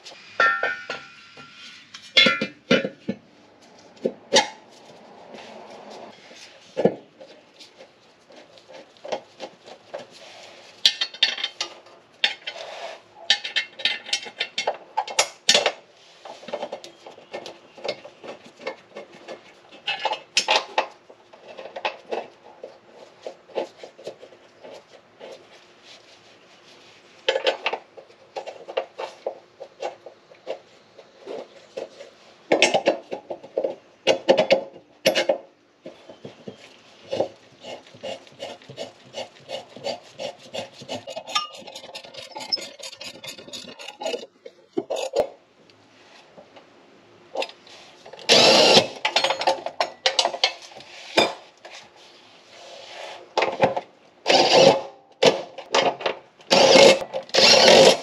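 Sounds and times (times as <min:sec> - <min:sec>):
cordless power tool bursts: 0:48.3 - 0:49.0, 0:54.3 - 0:54.8, 0:56.5 - 0:58.0.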